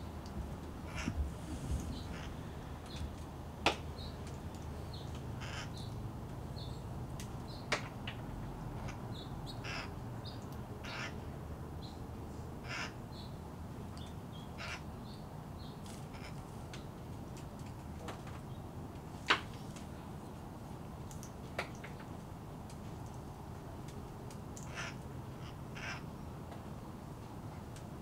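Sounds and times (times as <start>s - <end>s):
parakeets calling harshly: 0.8s - 1.2s, 1.9s - 2.4s, 5.4s - 5.8s, 8.8s - 9.9s, 10.8s - 11.2s, 12.6s - 13.0s, 14.6s - 14.8s, 16.1s - 16.4s, 24.6s - 26.1s
small birds chirping: 0.8s - 3.2s, 3.9s - 11.2s.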